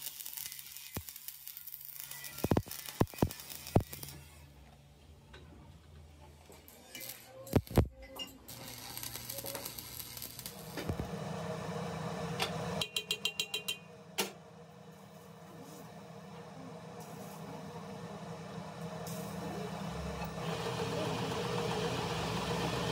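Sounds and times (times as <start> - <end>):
lathe hum: 8.5 - 22.9.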